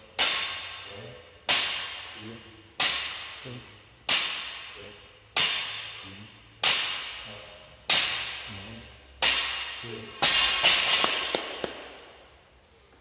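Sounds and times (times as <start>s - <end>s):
barbell hitting the floor: 0.2s - 0.9s, 4.0s - 6.0s, 6.6s - 7.3s, 7.9s - 8.5s, 9.2s - 11.9s.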